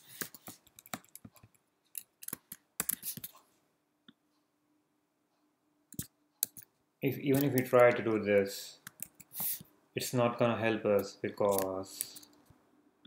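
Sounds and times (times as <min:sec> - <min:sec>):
typing on a computer keyboard: 0:00.2 - 0:03.3, 0:05.9 - 0:06.7.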